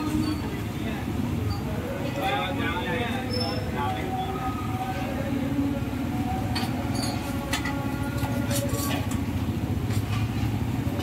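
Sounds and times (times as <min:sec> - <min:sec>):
low traffic rumble: 0:00.0 - 0:11.0
light clinks: 0:06.5 - 0:08.8.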